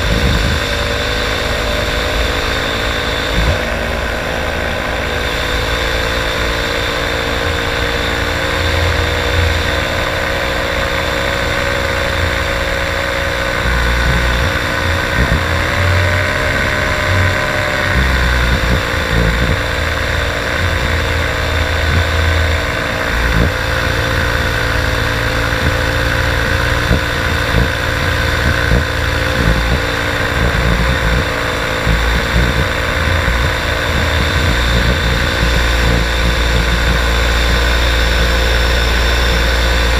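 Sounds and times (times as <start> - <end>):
wind buffeting microphone: 0.0 - 2.0, 13.5 - 39.2
paramotor engine and propeller: 0.0 - 39.9.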